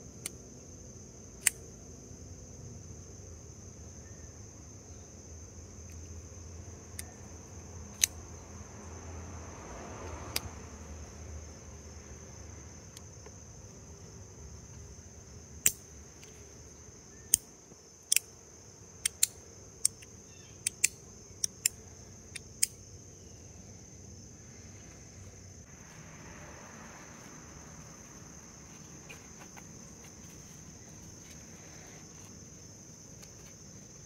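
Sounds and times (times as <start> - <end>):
high insect chirring: 0.0 - 34.0
folding knife snapping clicks: 15.6 - 15.8, 18.1 - 18.3, 19.0 - 22.8.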